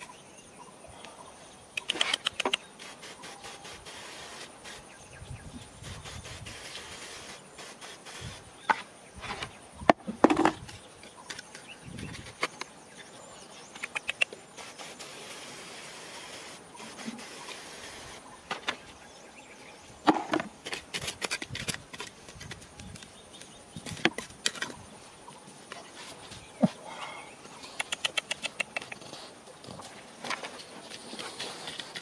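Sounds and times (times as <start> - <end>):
hand pump sprayer hissing: 1.9 - 5.0, 5.8 - 8.8, 14.0 - 18.3
stones and gravelly soil knocking: 8.6 - 12.7, 20.0 - 24.8
hand trowel scraping soil: 10.2 - 13.1, 20.1 - 24.9, 25.6 - 32.0.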